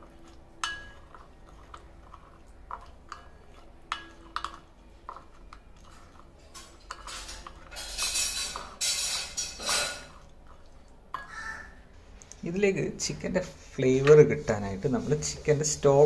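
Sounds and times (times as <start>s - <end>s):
spoon stirring in glass bowl: 0.0s - 11.6s.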